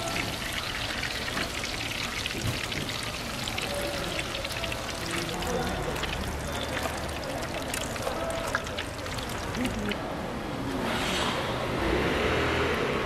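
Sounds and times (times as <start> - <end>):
hot oil sizzling and crackling: 0.0 - 10.0.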